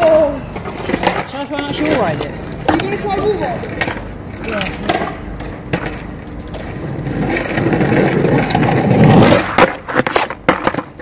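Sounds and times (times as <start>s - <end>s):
skateboard clacking on concrete: 0.0s - 11.0s
skateboard wheels rolling on asphalt: 0.0s - 11.0s.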